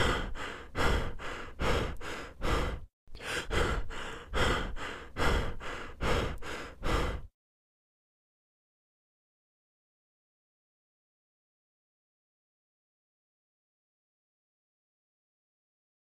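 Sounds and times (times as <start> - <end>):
rhythmic heavy breathing: 0.0 - 7.3.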